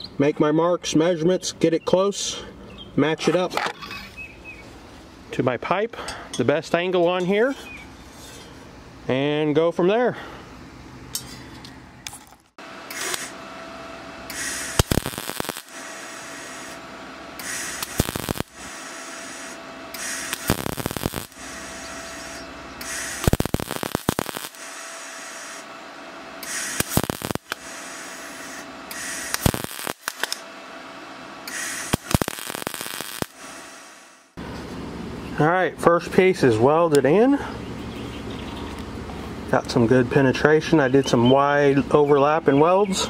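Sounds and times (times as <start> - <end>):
faint steady whine: 0.0 - 43.0
sharp welding pops: 12.9 - 13.3, 14.3 - 16.8, 17.4 - 25.6, 26.4 - 30.5, 31.5 - 34.2
welder arc crackling: 12.9 - 13.3, 14.3 - 16.8, 17.4 - 25.7, 26.4 - 30.5, 31.5 - 34.4.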